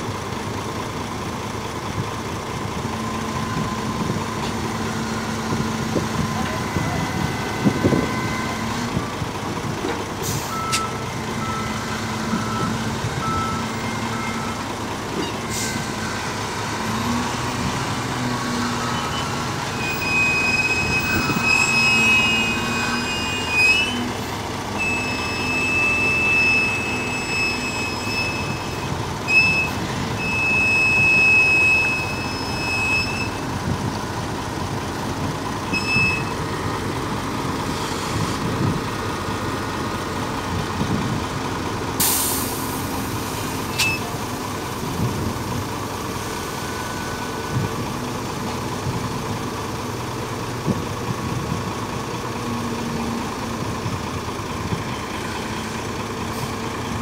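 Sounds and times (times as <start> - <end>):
heavy diesel machinery running: 0.0 - 57.0.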